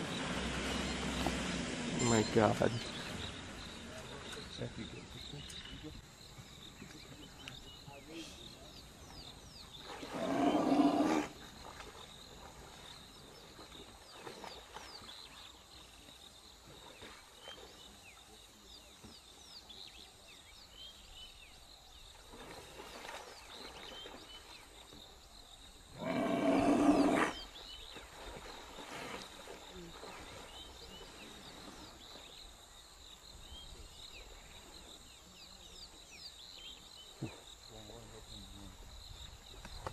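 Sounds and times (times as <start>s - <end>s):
faint bird or insect chirps: 0.0s - 39.9s
big cat roaring: 10.1s - 11.3s, 26.0s - 27.4s.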